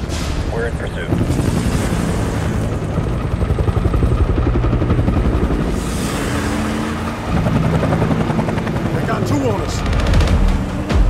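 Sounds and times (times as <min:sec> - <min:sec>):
helicopter rotor chop: 0:00.0 - 0:11.0
vehicle engine running hard: 0:05.1 - 0:11.0.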